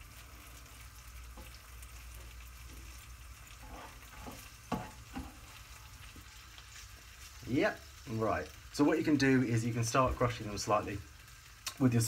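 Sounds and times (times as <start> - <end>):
beans sizzling in a pan: 0.0 - 12.0
spoon knocking on pan: 4.2 - 5.4.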